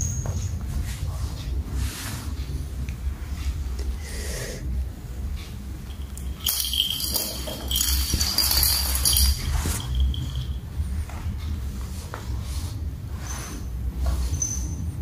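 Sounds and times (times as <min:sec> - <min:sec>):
bell toy ball jingling: 0:05.9 - 0:10.6.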